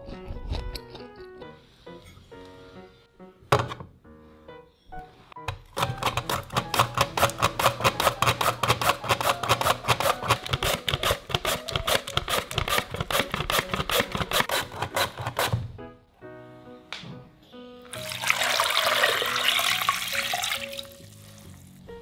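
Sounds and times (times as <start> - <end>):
potato slicing on mandoline: 5.5 - 15.6.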